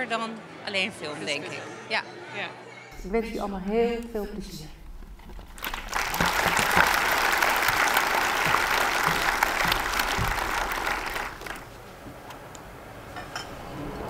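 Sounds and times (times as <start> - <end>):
audience applauding: 5.2 - 11.7.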